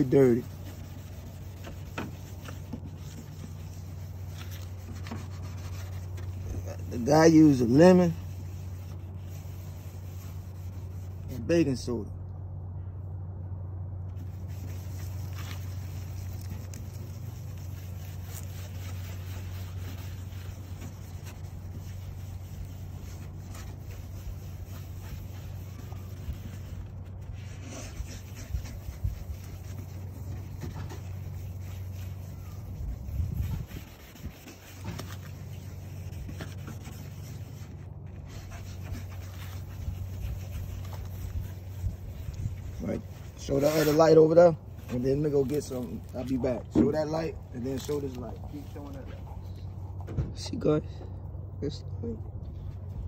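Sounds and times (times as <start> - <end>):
gritty rubbing on plastic: 0.0 - 12.0, 14.1 - 50.2
low hum: 0.0 - 43.5
lemon scrubbing headlight lens: 14.2 - 47.0.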